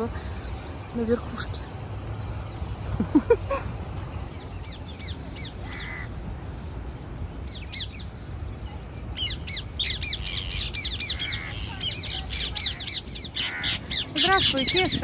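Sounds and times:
parakeets screeching: 0:04.3 - 0:06.1, 0:09.2 - 0:15.0.

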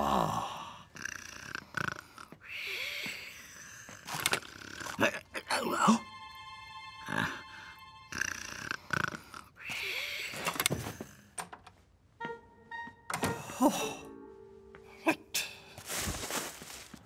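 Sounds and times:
short musical notes: 0:12.2 - 0:15.4.

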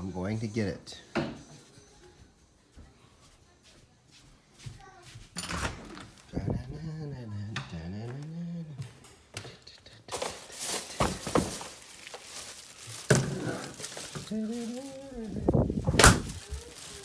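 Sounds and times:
objects knocking and rustling: 0:08.8 - 0:17.0.

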